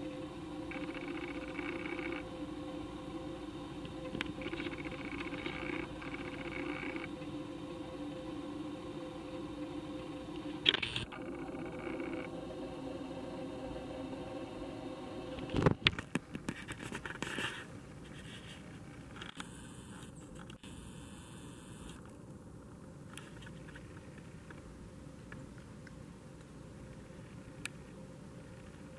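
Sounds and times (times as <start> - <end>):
faint hiss: 0.0 - 28.9
steady hum: 0.0 - 28.9
scratching scraping and clicking: 3.8 - 7.1, 15.5 - 20.6.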